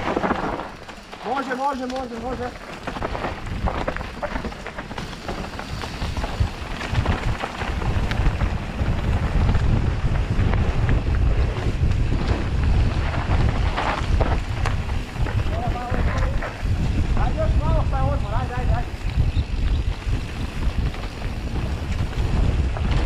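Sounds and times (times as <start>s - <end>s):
bike rattling over rough ground: 0.0s - 23.0s
wind buffeting microphone: 1.6s - 23.0s.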